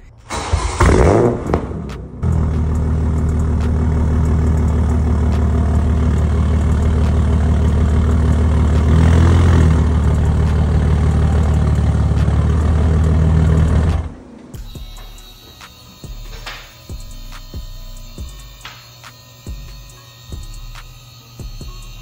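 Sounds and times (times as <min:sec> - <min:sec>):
car engine idling: 0:00.0 - 0:14.5.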